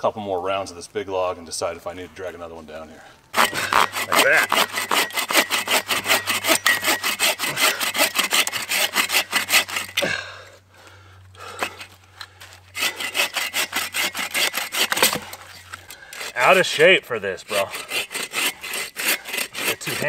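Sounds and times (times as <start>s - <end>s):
hand saw cutting log: 3.3s - 10.2s, 11.4s - 20.0s.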